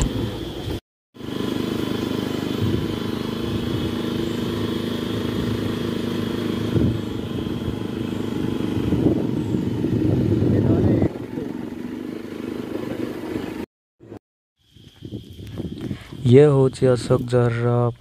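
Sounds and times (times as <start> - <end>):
motorcycle engine running: 0.0 - 14.2.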